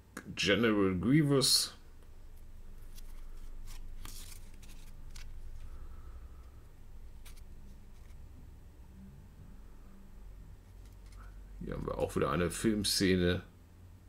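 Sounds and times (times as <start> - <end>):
steady low hum: 0.0 - 14.0
cards scraping and flicking: 2.8 - 5.8, 7.1 - 8.3, 10.6 - 12.1.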